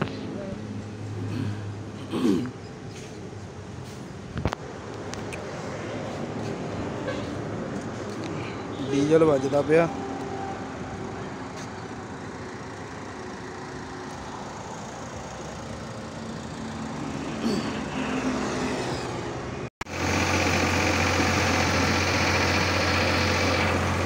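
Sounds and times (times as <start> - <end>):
tractor diesel engine humming: 10.8 - 19.3, 19.9 - 24.0
vehicle engine running: 10.8 - 24.0.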